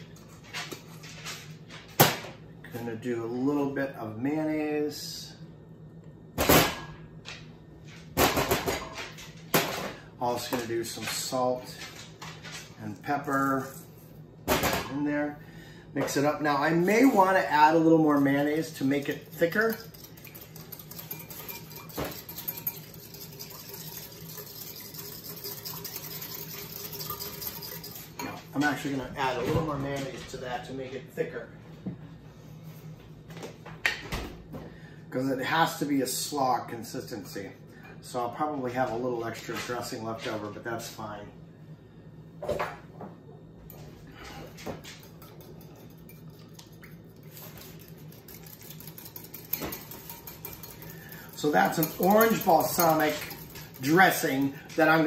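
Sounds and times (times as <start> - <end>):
steady low hum: 0.0 - 55.0
utensil stirring liquid in glass bowl: 16.7 - 28.4, 44.9 - 55.0
utensil clinking against glass: 19.0 - 28.4, 48.2 - 54.3.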